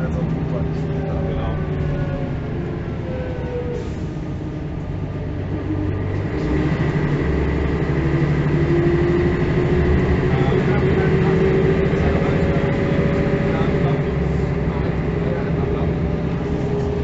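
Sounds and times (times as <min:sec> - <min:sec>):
bus engine: 0:00.0 - 0:17.0.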